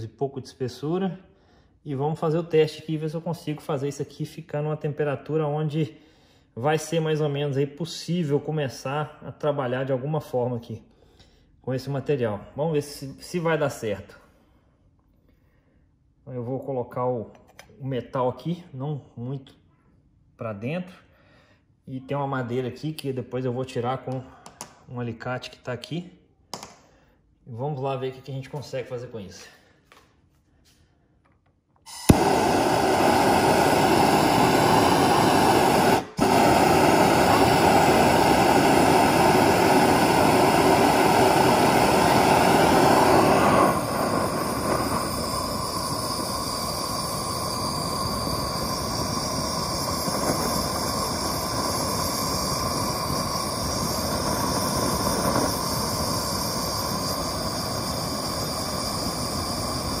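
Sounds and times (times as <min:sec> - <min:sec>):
gas torch igniting: 0:31.8 - 1:00.0
gas torch flame hissing: 0:31.9 - 1:00.0.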